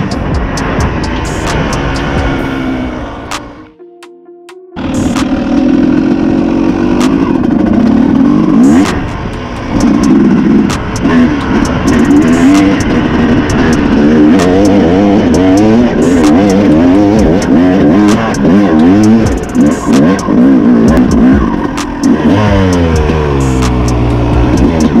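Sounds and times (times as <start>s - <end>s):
dirt bike engine revving: 0.0s - 3.7s, 4.8s - 25.0s
sharp clicks and clatter: 6.9s - 25.0s.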